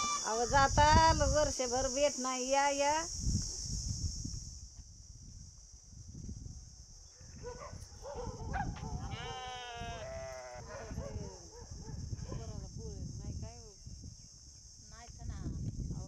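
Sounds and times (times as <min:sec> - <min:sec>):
sheep and goats bleating: 0:00.0 - 0:00.5, 0:09.0 - 0:11.0.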